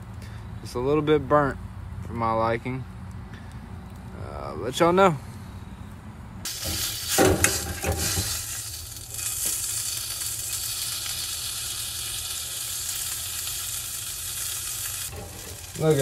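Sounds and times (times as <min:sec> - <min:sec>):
pork chop sizzling in oil: 0:06.5 - 0:16.0.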